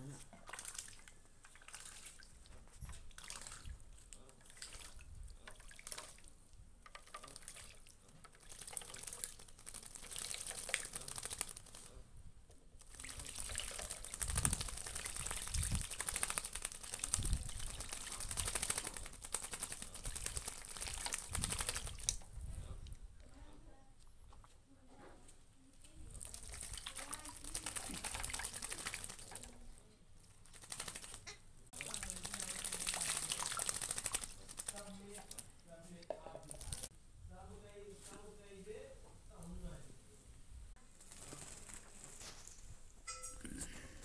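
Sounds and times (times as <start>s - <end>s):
bird splashing in water: 0.3s - 12.0s, 12.8s - 22.6s, 26.0s - 29.7s, 30.4s - 36.9s.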